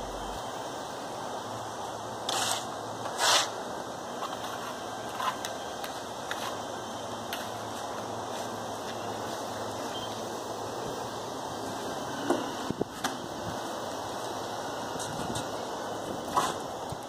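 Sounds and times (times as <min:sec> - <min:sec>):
steady background hiss: 0:00.0 - 0:17.0
trowel scraping wet stucco: 0:02.3 - 0:03.6.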